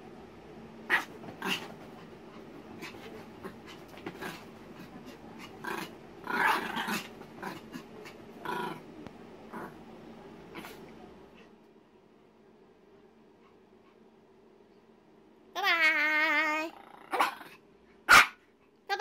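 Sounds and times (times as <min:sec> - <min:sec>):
puppy scrabbling on bedding: 0:00.9 - 0:08.2
puppy growling: 0:00.9 - 0:09.9, 0:16.5 - 0:17.6.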